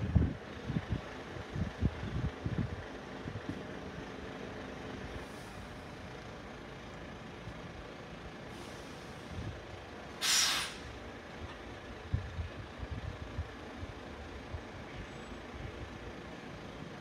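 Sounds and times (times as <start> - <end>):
traffic rumble: 0.0 - 17.0
air brakes hiss: 5.2 - 5.9, 8.5 - 9.4, 10.2 - 11.0.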